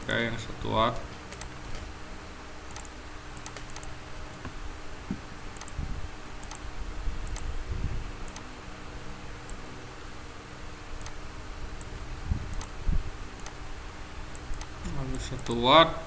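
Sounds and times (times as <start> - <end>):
faint steady hum: 0.0 - 16.0
mouse and keyboard clicks: 2.7 - 4.5, 12.5 - 12.8.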